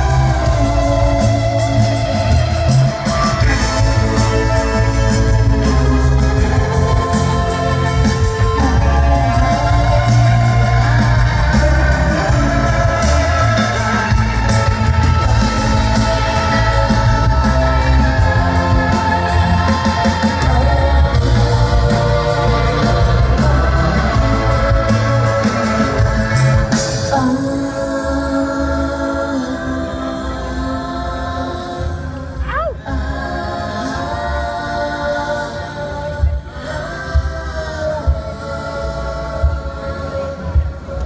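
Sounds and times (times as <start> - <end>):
live rock band playing: 0.0 - 27.4
person singing: 0.0 - 41.0.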